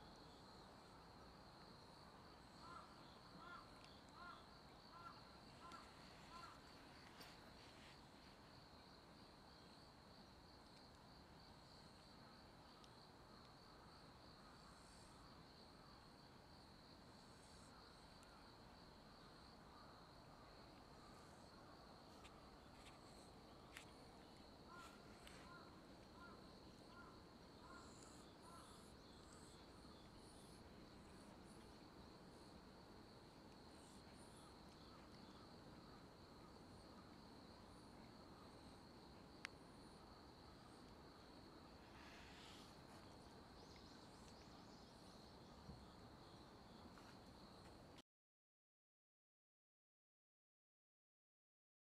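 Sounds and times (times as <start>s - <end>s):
faint chirps: 2.4s - 8.9s, 19.8s - 31.9s, 41.7s - 45.9s
high-pitched insect trill: 41.8s - 45.3s.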